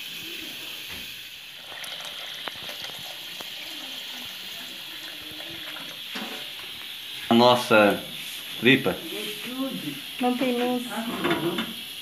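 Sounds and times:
tap water splashing into pot: 0.8 - 8.1, 11.2 - 11.9.

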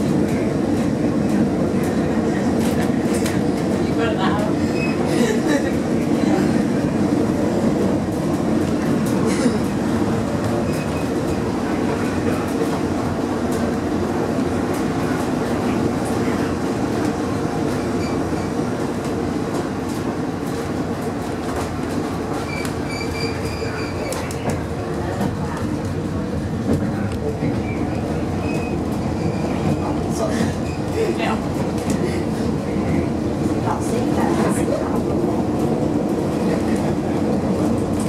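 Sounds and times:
tram rumbling and rattling: 0.0 - 38.0.

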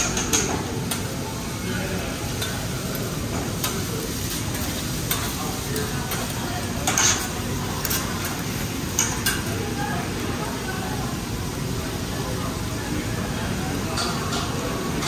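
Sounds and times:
food sizzling on a griddle: 0.0 - 15.0
metal spatulas scraping and tapping: 2.4 - 2.7, 3.3 - 9.5.

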